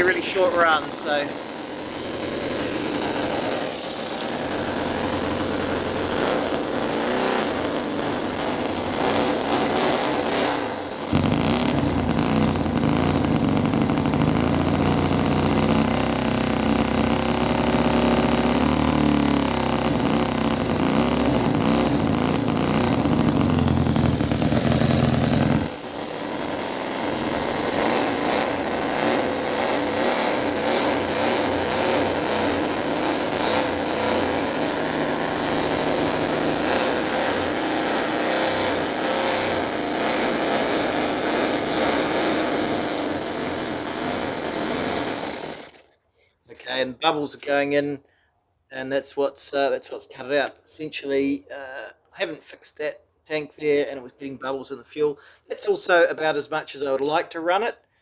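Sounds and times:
model petrol engine running: 0.0 - 45.9.

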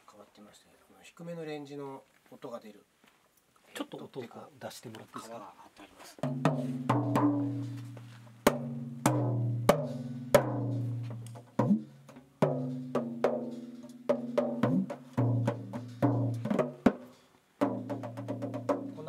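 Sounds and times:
hand drums struck: 6.2 - 19.0.

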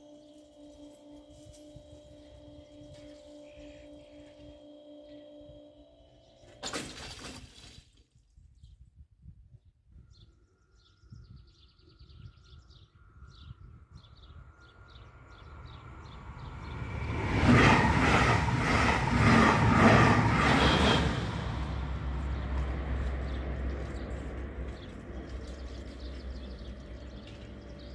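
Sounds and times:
train wheels clattering on rails: 16.5 - 27.9.

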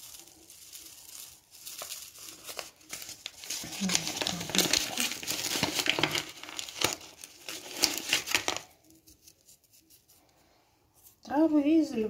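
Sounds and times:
plastic packet crinkling: 0.0 - 9.0
herbs rustling: 0.0 - 10.4.

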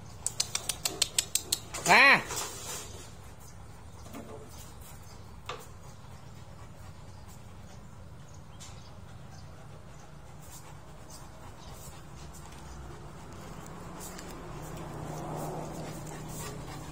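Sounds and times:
dog claws clicking on tiles: 0.2 - 1.8.

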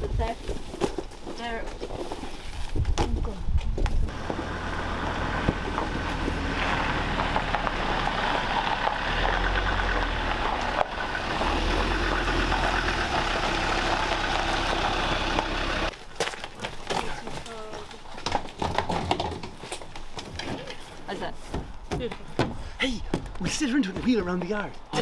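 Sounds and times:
vehicle engine running: 4.1 - 15.9.

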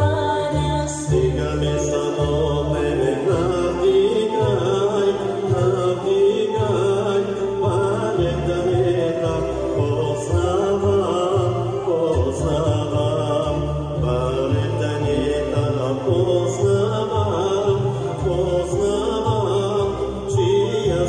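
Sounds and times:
instrumental accompaniment with bass: 0.0 - 21.0
person singing: 0.0 - 21.0.

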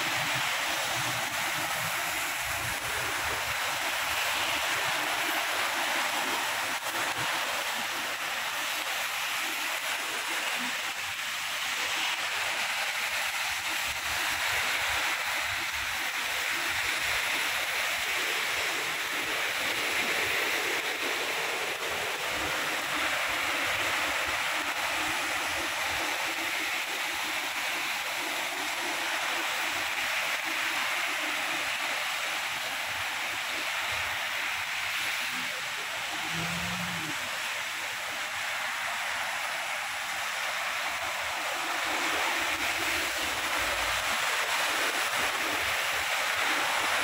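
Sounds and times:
steady rain hissing: 0.0 - 47.0.

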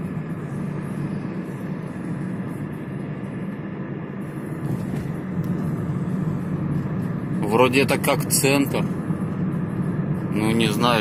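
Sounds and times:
car engine and tyre hum: 0.0 - 11.0.

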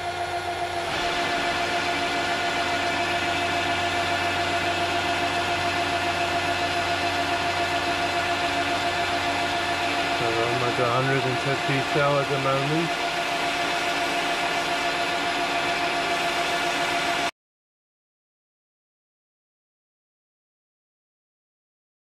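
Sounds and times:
lathe motor and gear whine: 0.0 - 17.3.

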